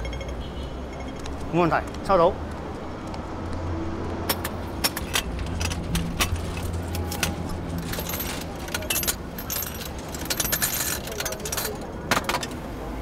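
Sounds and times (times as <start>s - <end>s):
low traffic hum: 0.0s - 13.0s
payphone metallic clicks and rattles: 4.3s - 12.6s.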